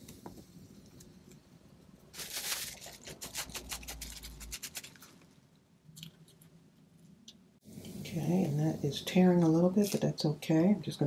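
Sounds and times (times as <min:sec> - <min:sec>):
cling wrap crinkling: 0:02.1 - 0:05.3.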